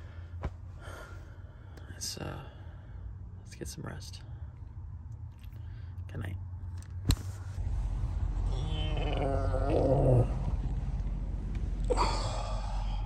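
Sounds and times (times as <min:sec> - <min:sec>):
steady low hum: 0:00.0 - 0:13.0
man yawning: 0:11.9 - 0:13.0.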